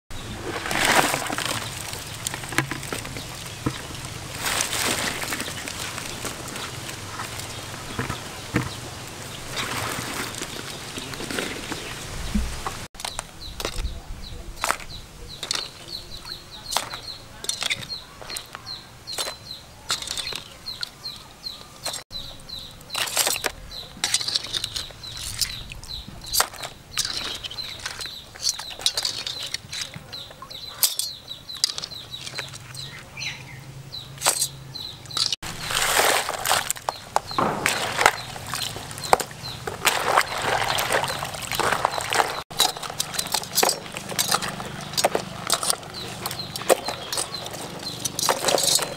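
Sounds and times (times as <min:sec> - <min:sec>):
water splashing in a tub: 0:00.2 - 0:12.9, 0:35.4 - 0:48.6
crabs clattering and clicking: 0:00.4 - 0:11.9, 0:14.6 - 0:33.1, 0:34.2 - 0:48.9
bird chirping: 0:10.5 - 0:36.0, 0:36.8 - 0:48.9.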